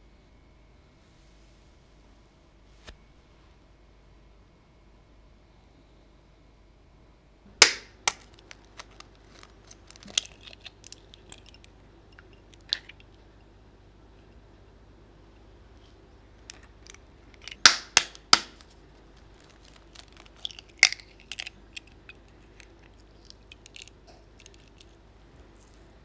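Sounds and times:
crackling of eggshells: 7.6s - 13.4s, 16.4s - 26.0s.

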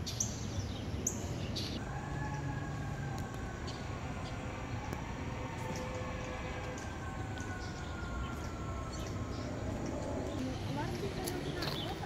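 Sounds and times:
distant train horn: 4.0s - 8.1s.

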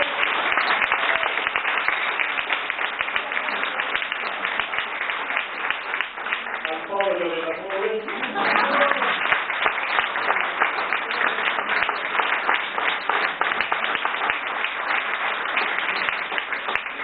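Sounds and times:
crowd applauding: 0.0s - 17.0s.

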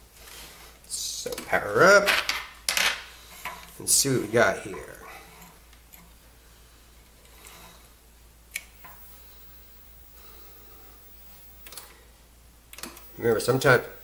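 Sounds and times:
faint steady hum: 2.9s - 14.0s.

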